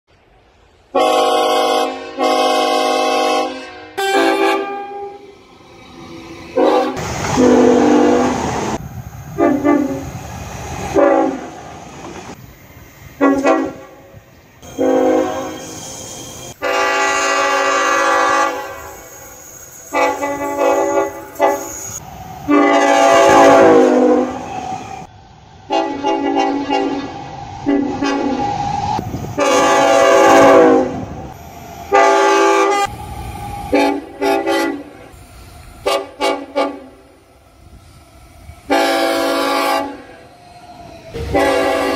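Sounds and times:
train horn blasts: 0:00.9 - 0:05.3, 0:06.6 - 0:08.4, 0:09.4 - 0:10.0, 0:10.9 - 0:11.5, 0:13.2 - 0:15.8, 0:16.5 - 0:19.0, 0:19.9 - 0:21.8, 0:22.5 - 0:24.4, 0:25.7 - 0:28.4, 0:29.4 - 0:31.1, 0:31.9 - 0:32.9, 0:33.7 - 0:35.1, 0:35.8 - 0:37.1, 0:38.7 - 0:40.2, 0:41.2 - 0:41.9
train running rumble: 0:05.4 - 0:15.6, 0:16.4 - 0:41.9.

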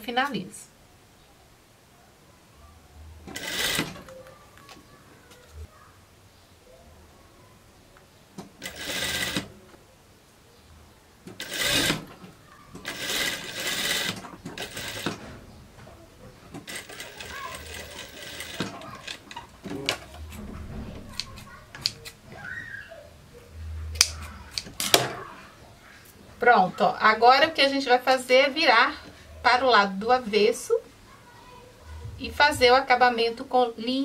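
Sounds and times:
sewing machine stitching: 0:03.3 - 0:04.1, 0:08.5 - 0:09.6, 0:11.3 - 0:12.2, 0:12.8 - 0:15.2, 0:16.6 - 0:22.0.

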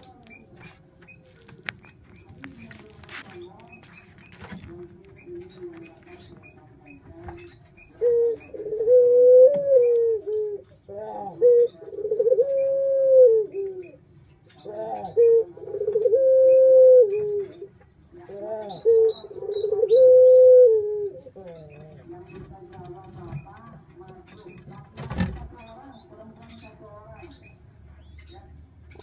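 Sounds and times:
dove cooing: 0:04.6 - 0:25.4.

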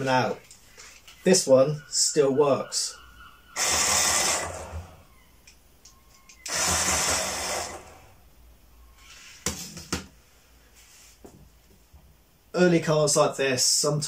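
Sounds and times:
toy car electric motor whirring: 0:03.6 - 0:05.0, 0:06.2 - 0:08.1.

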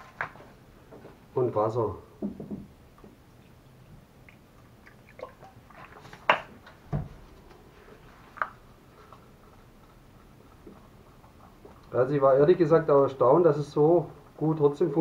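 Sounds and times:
dull knock: 0:02.2 - 0:02.7.

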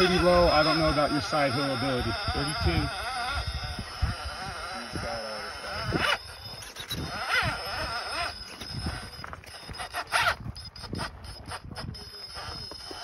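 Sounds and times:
electric motor and gears whining: 0:00.0 - 0:13.0
crunches on gravel: 0:06.0 - 0:13.0.

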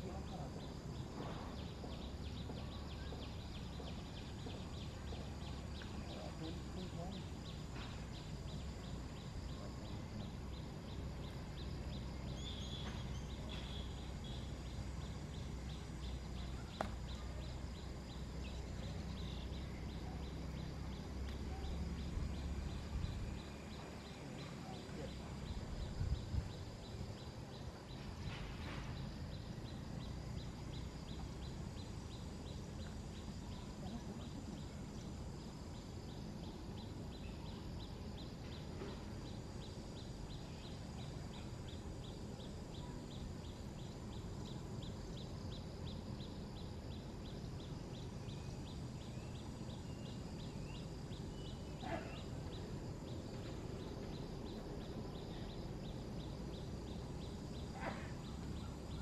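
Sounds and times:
steady low rumble: 0:00.0 - 0:38.5.

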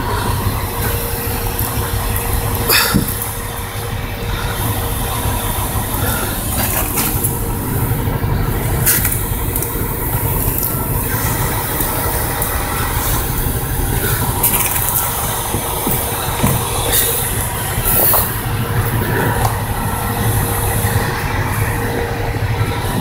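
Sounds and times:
vehicle engine rumble: 0:00.0 - 0:23.0.

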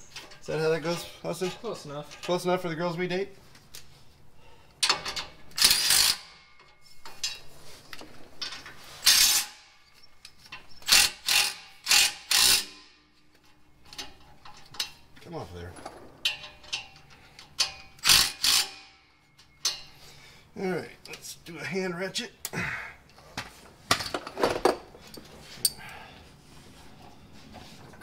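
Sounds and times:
hand ratchet clicking: 0:04.8 - 0:06.4, 0:09.0 - 0:09.6, 0:10.2 - 0:13.0, 0:16.7 - 0:19.0.

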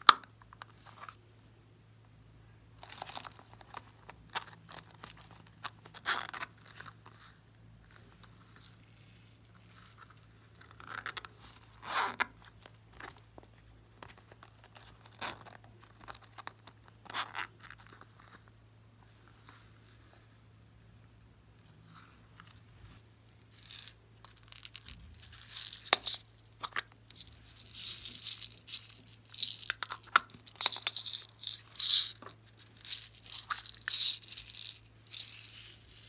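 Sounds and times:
beads shaken into glass dish: 0:23.3 - 0:36.0
plastic cases crinkling and clicking: 0:24.2 - 0:34.0.

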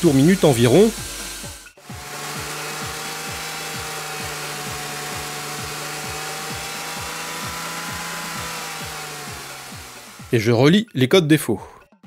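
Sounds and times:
car engine humming: 0:01.0 - 0:10.4.

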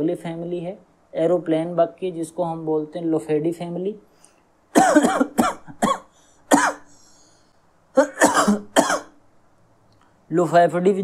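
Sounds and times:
man coughing: 0:04.7 - 0:07.0, 0:08.0 - 0:09.2.

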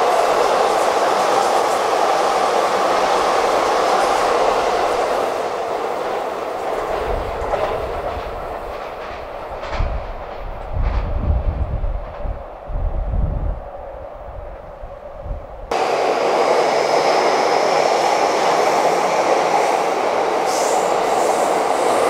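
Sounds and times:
electric train pulling away: 0:15.7 - 0:22.0.

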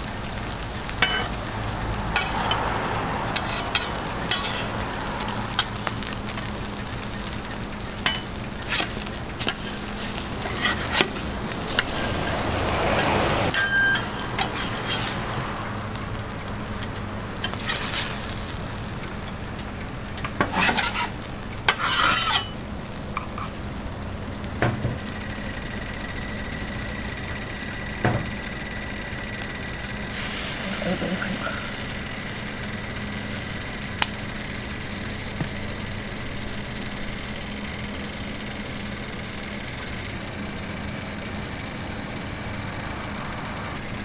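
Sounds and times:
eggs sizzling on a griddle: 0:00.0 - 0:44.0
metal spatula scraping griddle: 0:00.5 - 0:01.4, 0:02.1 - 0:07.0, 0:08.0 - 0:15.4, 0:17.4 - 0:18.4, 0:20.2 - 0:22.6.

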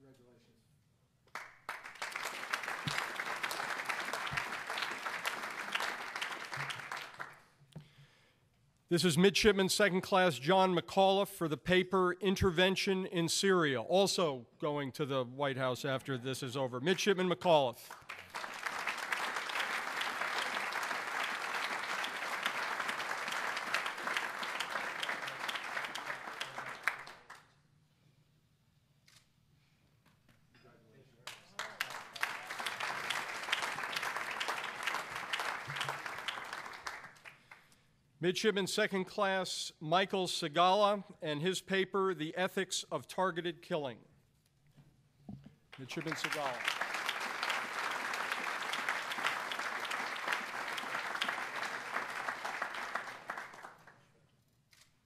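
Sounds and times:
audience applauding: 0:01.3 - 0:07.5, 0:17.9 - 0:27.5, 0:31.3 - 0:37.6, 0:45.8 - 0:54.0.

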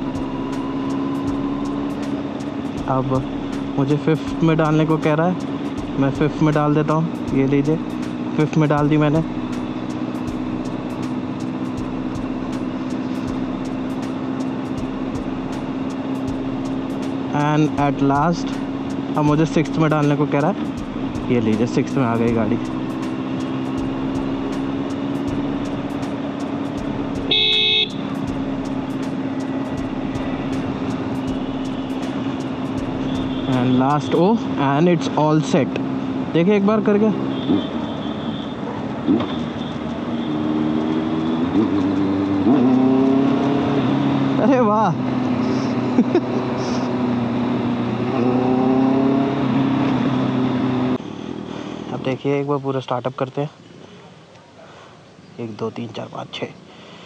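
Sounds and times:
motorcycle engine cruising: 0:00.0 - 0:52.2
wind and road noise: 0:00.0 - 0:57.0
vehicle horn: 0:27.3 - 0:28.2, 0:33.0 - 0:34.3, 0:37.2 - 0:40.8.

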